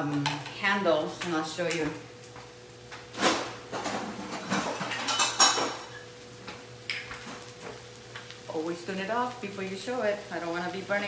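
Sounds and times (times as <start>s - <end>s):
metal kitchenware clattering: 3.2s - 6.0s.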